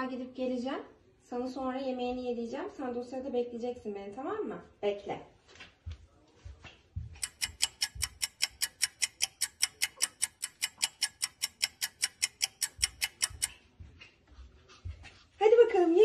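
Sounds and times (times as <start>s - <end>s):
rapid clock-like ticking: 7.1s - 15.3s.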